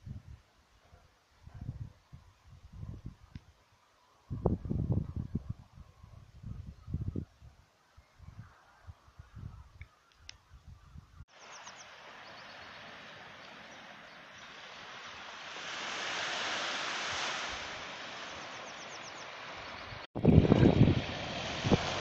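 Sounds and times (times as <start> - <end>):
wind buffeting microphone: 4.3 - 7.6, 14.5 - 22.0
sea surf washing on shore: 11.3 - 22.0.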